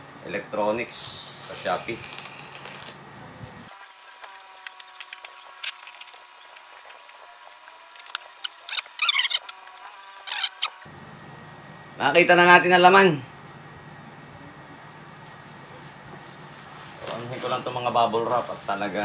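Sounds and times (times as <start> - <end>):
bubble wrap crinkling: 3.7 - 9.4.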